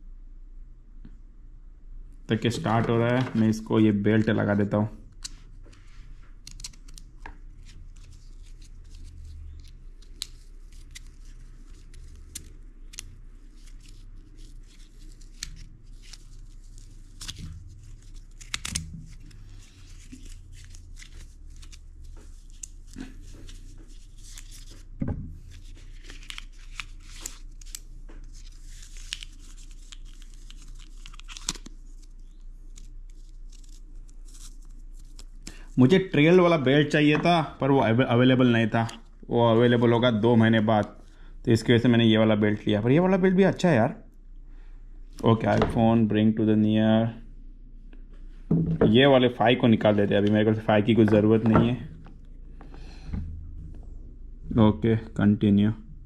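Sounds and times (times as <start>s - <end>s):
faint steady hum: 0.0s - 56.0s.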